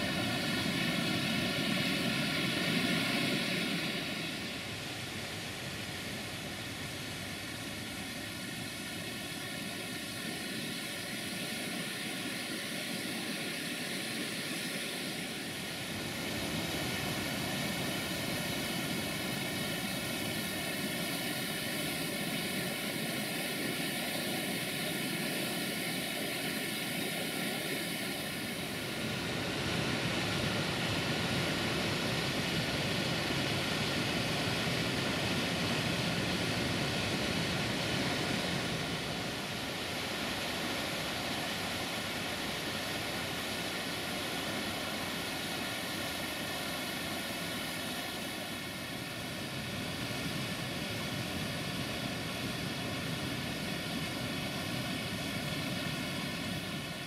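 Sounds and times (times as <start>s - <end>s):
river rapids and waterfall rushing: 9.0s - 57.0s.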